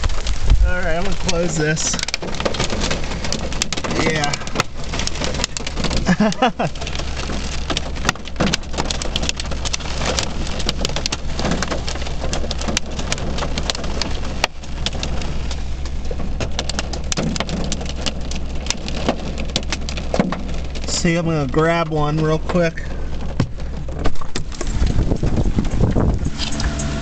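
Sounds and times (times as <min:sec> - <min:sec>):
heavy rain hiss: 0:00.0 - 0:04.6
hailstones striking a car: 0:00.0 - 0:27.0.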